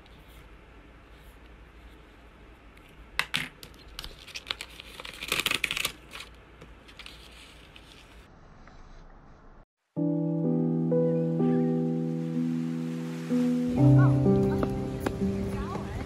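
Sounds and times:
paper handling: 3.6 - 8.3
paper tearing from notebook: 4.0 - 7.9.

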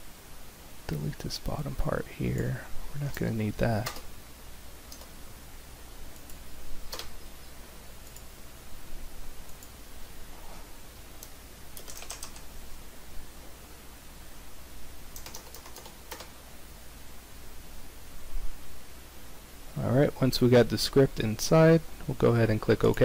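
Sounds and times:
faint low hum: 0.0 - 23.0
keyboard keys tapping: 11.8 - 12.4, 15.2 - 16.3.

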